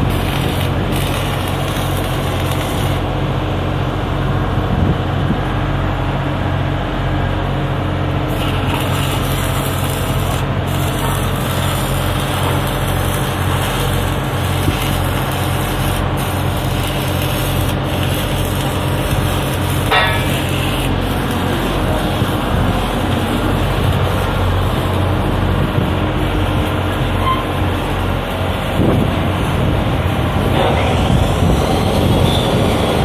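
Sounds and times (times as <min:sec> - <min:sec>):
faint welding crackle: 0:00.0 - 0:03.2, 0:08.3 - 0:31.0
welding equipment drone: 0:00.0 - 0:33.0.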